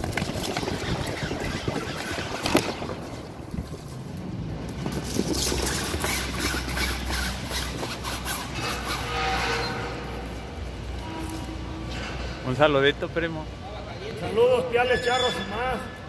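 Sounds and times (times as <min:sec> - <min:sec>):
wind buffeting microphone: 0:00.0 - 0:08.6.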